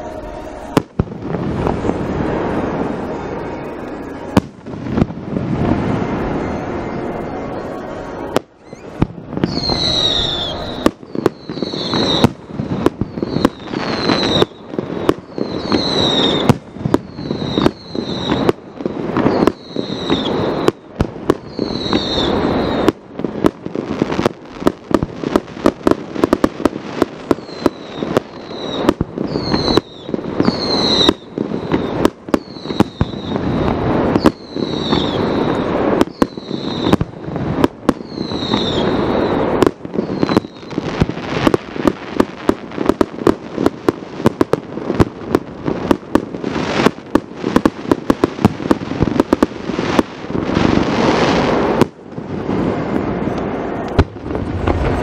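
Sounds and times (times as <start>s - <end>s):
fireworks bangs: 0.0s - 55.0s
fireworks crackling: 0.0s - 55.0s
falling whistle: 6.3s - 12.3s, 21.5s - 22.9s, 34.2s - 37.0s.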